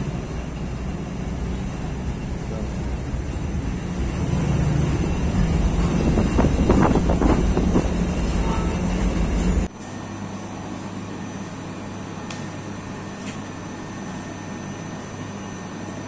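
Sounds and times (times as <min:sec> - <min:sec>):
bakery machinery humming: 0:00.0 - 0:16.0
steady motor hum: 0:00.0 - 0:16.0.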